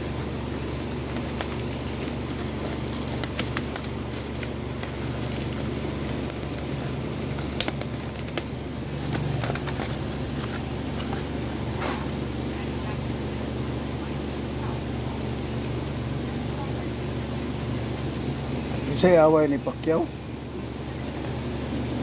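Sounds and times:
low fan hum: 0:00.0 - 0:22.0
loudspeaker cone clicks and crackles: 0:00.8 - 0:11.2.

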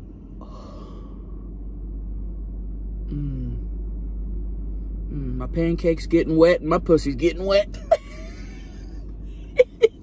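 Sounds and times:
low rumble in car cabin: 0:00.0 - 0:10.0
person humming: 0:03.1 - 0:03.7.

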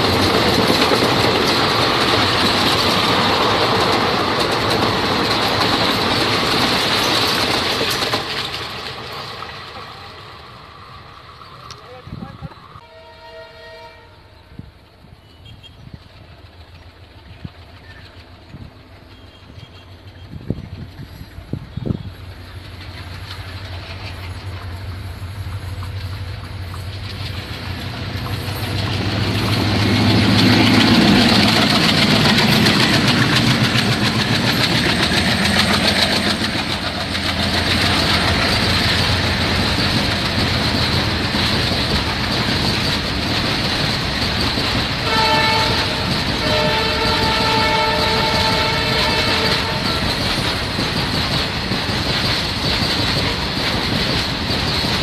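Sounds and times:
wagons rumbling and clattering: 0:00.0 - 0:10.1, 0:16.2 - 0:55.0
diesel locomotive engine drone: 0:00.0 - 0:55.0
train horn: 0:12.8 - 0:14.5, 0:45.0 - 0:50.2.

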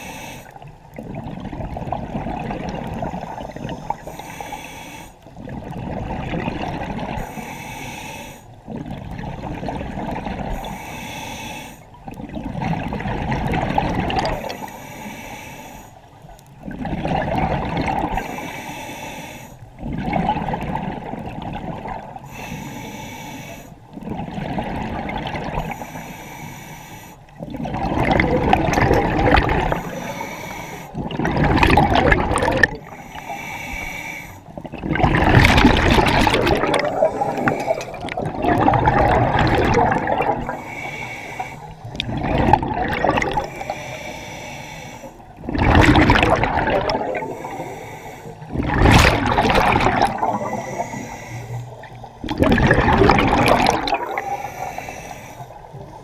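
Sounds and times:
regulator inhale hiss: 0:00.0 - 0:00.6, 0:02.9 - 0:05.3, 0:07.2 - 0:08.6, 0:10.5 - 0:12.0, 0:14.4 - 0:16.2, 0:18.2 - 0:19.7, 0:22.2 - 0:24.0, 0:25.6 - 0:27.4, 0:29.7 - 0:31.0, 0:32.7 - 0:34.6, 0:36.8 - 0:38.2, 0:40.4 - 0:42.0, 0:43.3 - 0:45.4, 0:47.1 - 0:48.5, 0:50.3 - 0:52.0, 0:54.1 - 0:56.0
exhaled air bubbling: 0:00.0 - 0:04.5, 0:05.1 - 0:07.4, 0:08.6 - 0:10.8, 0:11.9 - 0:14.7, 0:16.4 - 0:18.5, 0:19.6 - 0:22.6, 0:23.8 - 0:25.8, 0:27.3 - 0:56.0.

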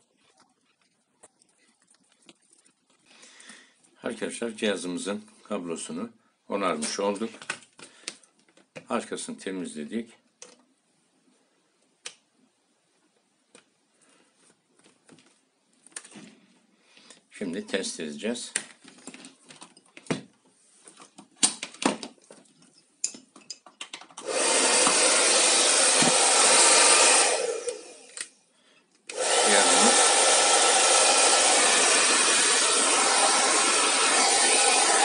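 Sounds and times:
handling clicks and knocks: 0:21.1 - 0:24.2
hair dryer blowing: 0:24.2 - 0:28.2, 0:29.1 - 0:35.0.

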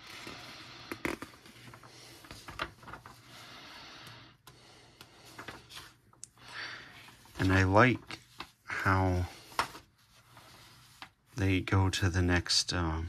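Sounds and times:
paper pages rustling: 0:00.0 - 0:03.5, 0:05.0 - 0:11.4
sharp paper crackles: 0:00.9 - 0:03.4.

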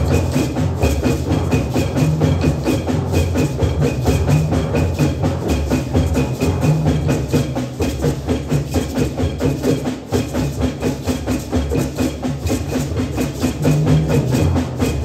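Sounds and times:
hand drums fast rhythm: 0:00.0 - 0:15.0.

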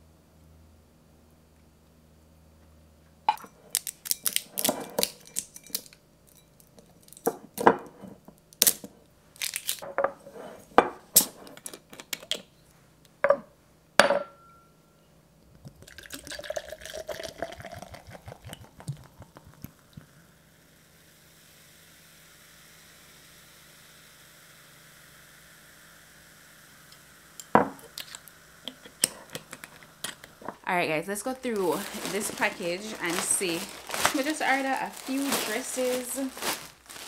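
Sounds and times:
clinks and knocks of dishes: 0:13.2 - 0:14.6
fizzy drink pouring into glass: 0:15.7 - 0:23.6.

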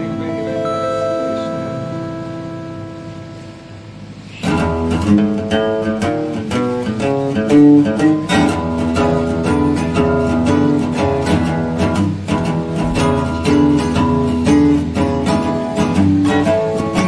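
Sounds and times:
faint held chord: 0:00.0 - 0:05.6
plucked guitar notes: 0:00.0 - 0:17.0.

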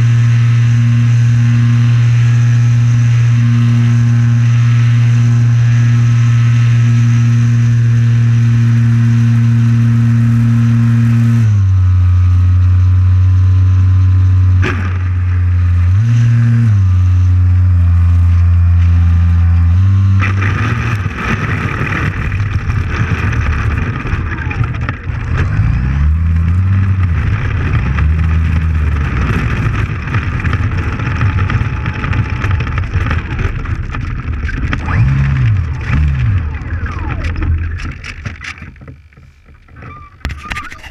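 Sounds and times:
model plane motor and propeller: 0:00.0 - 0:40.9.

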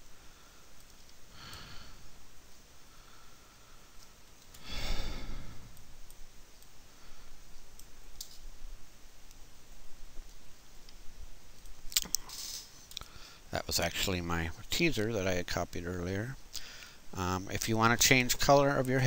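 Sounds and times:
computer mouse clicks: 0:00.8 - 0:01.6
person breathing out: 0:01.3 - 0:02.2, 0:04.6 - 0:05.8.

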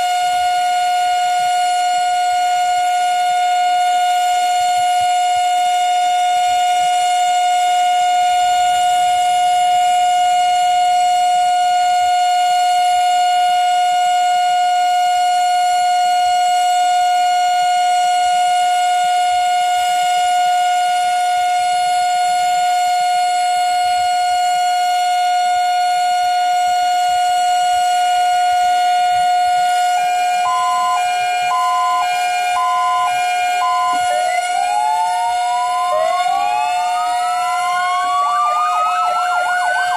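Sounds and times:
two-pitch vehicle siren: 0:00.0 - 0:39.9
steady siren tone: 0:29.1 - 0:39.9
rising siren wails: 0:30.3 - 0:39.9.

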